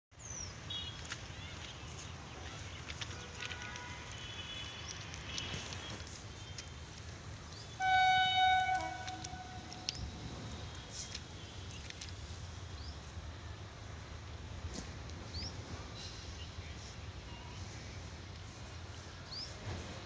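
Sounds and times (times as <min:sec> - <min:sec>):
birds chirping: 0:00.2 - 0:13.2
locomotive horn blast: 0:07.8 - 0:10.6.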